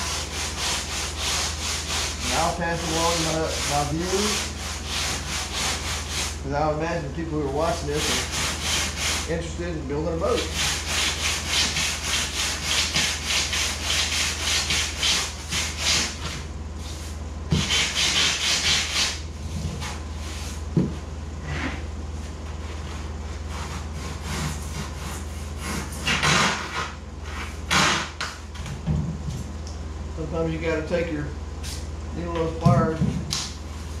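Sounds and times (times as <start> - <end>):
sandpaper scraping foam board: 0.0 - 6.4, 7.6 - 9.3, 10.3 - 20.6, 22.8 - 27.5
steady low hum: 0.0 - 34.0.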